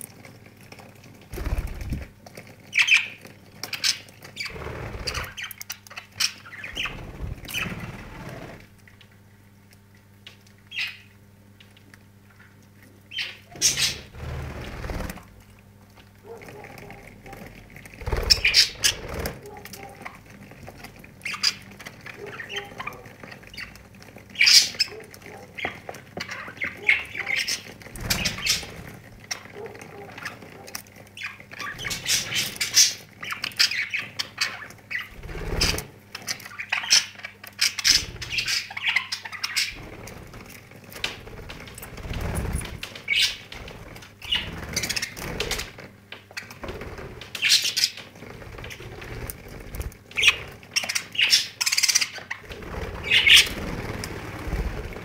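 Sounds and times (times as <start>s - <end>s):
wings flapping: 1.3s - 2.2s, 3.6s - 5.5s, 6.6s - 8.8s, 13.5s - 15.4s, 16.2s - 30.8s, 34.9s - 36.4s, 39.5s - 51.3s, 52.0s - 55.0s
budgerigars chirping and squawking: 2.7s - 8.6s, 10.7s - 11.1s, 13.1s - 15.2s, 16.5s - 20.2s, 21.2s - 40.2s, 42.1s - 43.6s, 44.2s - 45.7s, 47.3s - 49.0s, 49.7s - 55.0s.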